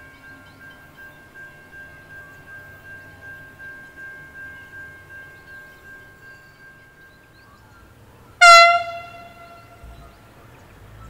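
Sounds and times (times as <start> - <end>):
faint birdsong: 5.1 - 11.0.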